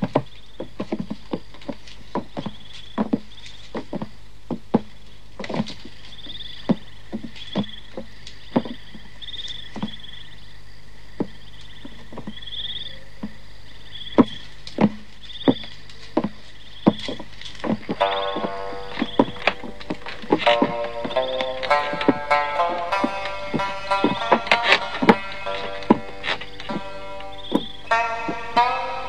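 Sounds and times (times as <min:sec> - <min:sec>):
sharp knocks and taps: 0:06.7 - 0:09.1, 0:11.2 - 0:12.4, 0:14.2 - 0:28.7
high trilling chirps: 0:16.6 - 0:29.0.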